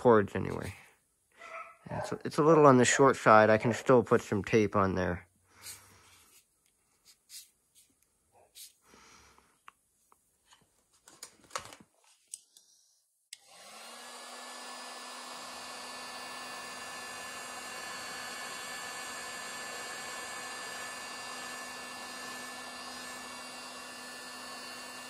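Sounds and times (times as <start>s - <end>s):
hands rustling with tubing: 5.5s - 11.4s
heat gun running: 13.4s - 25.0s.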